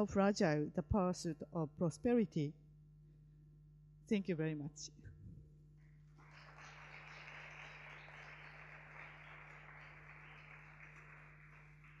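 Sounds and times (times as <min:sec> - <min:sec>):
low electrical hum: 0:00.0 - 0:12.0
faint audience applause: 0:06.1 - 0:12.0.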